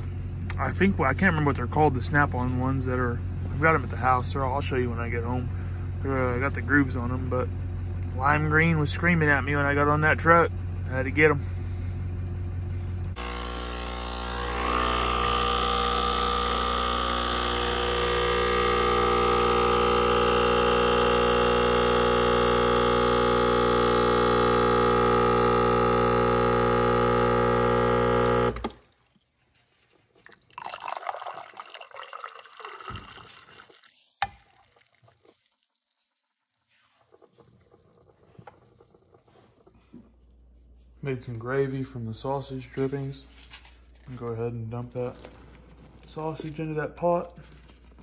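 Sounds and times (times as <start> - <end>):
espresso machine pump humming: 13.1 - 28.8, 30.6 - 33.7
liquid pouring into mug: 30.2 - 36.0.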